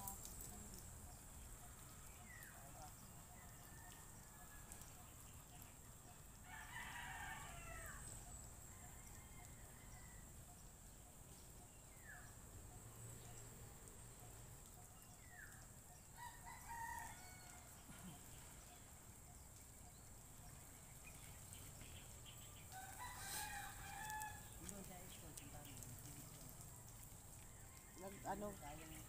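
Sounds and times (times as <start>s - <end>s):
rooster crowing: 3.4s - 4.9s, 6.4s - 10.3s, 16.2s - 18.0s, 22.7s - 24.6s.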